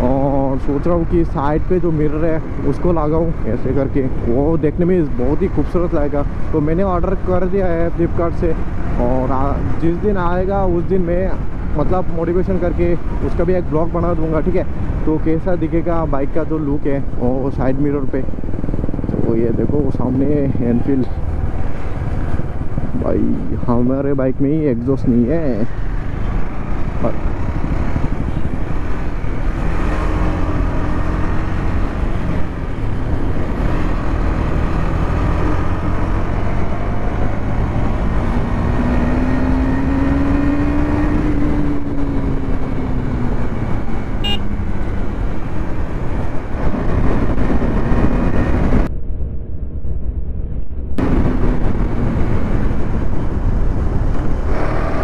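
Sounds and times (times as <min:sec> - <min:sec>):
wind rush on microphone: 0:00.0 - 0:55.0
motorcycle engine running: 0:39.4 - 0:48.9.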